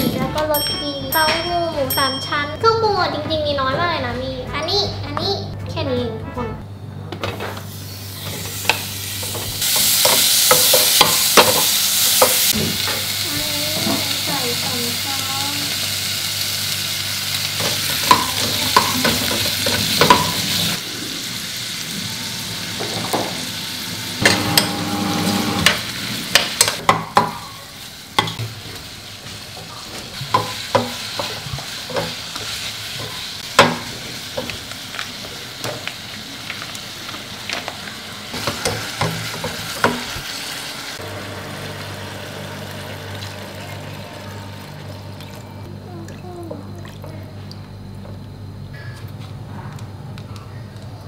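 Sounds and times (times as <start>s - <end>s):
food sizzling in a pot: 7.5s - 45.2s.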